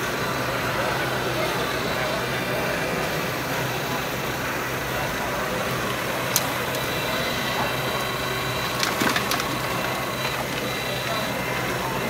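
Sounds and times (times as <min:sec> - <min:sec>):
hall background noise: 0:00.0 - 0:12.0
gravel clattering into truck bed: 0:08.7 - 0:09.8.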